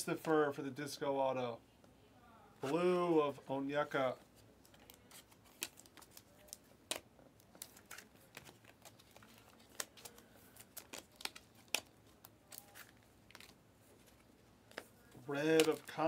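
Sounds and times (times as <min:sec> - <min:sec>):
cards flipped by hand: 0:04.6 - 0:16.0.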